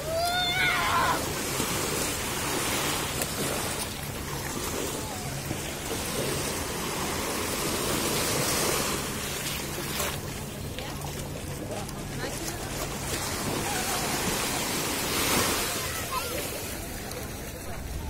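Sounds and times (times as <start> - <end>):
waves washing onto shore: 0.0 - 18.0.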